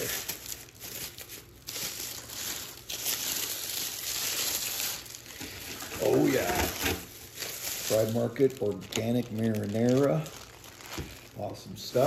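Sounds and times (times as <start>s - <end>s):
packaging crinkling and rustling: 0.0s - 12.0s.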